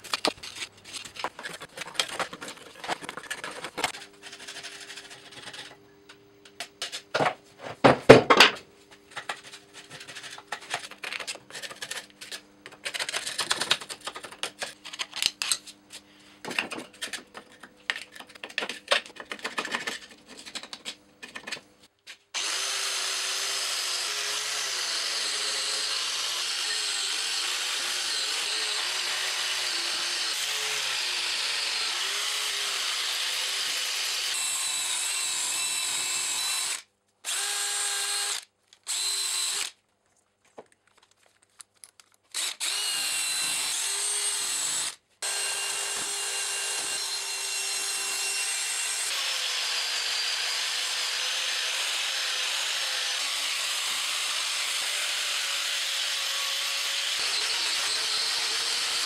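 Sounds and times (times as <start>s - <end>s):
angle grinder on metal: 22.4s - 39.8s, 42.3s - 59.0s
drill spinning wire wheel: 22.4s - 39.8s, 42.3s - 59.0s.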